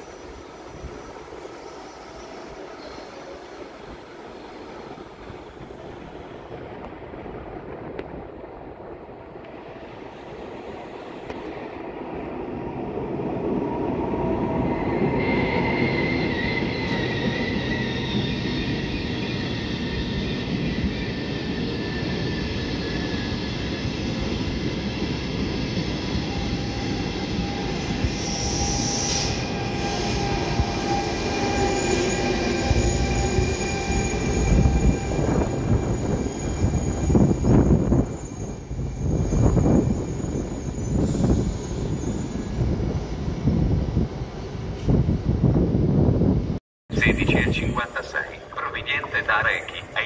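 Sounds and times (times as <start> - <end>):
wheels squealing on rails: 0.0 - 4.8, 13.6 - 43.3
train rumbling on tracks: 0.0 - 50.0.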